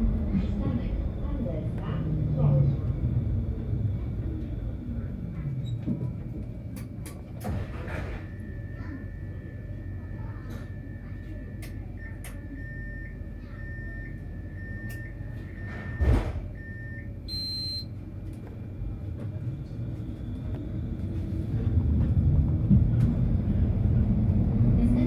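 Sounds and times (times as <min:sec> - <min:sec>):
tram rumble: 0:00.0 - 0:25.0
short high beep: 0:17.3 - 0:17.9.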